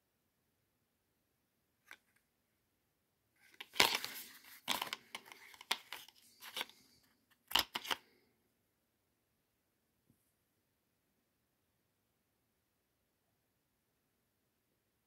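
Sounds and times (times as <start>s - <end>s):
cardboard box and paper rustling: 3.5s - 6.7s.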